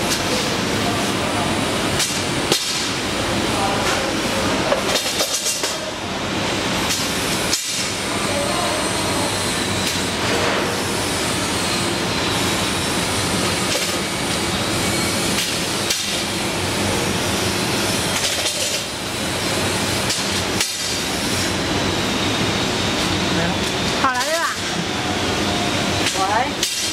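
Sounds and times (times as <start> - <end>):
packaging machinery clattering: 3.9 - 5.9, 17.9 - 19.0, 26.0 - 26.9.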